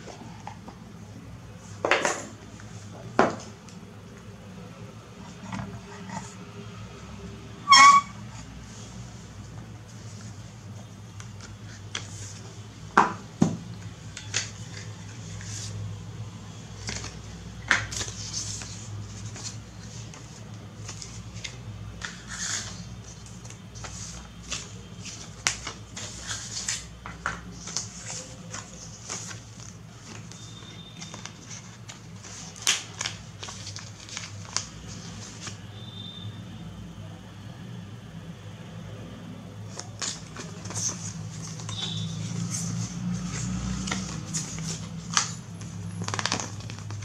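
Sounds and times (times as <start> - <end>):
paper and card rustling: 5.2 - 6.4, 7.8 - 12.9, 13.7 - 15.9, 16.7 - 35.6, 39.7 - 47.0.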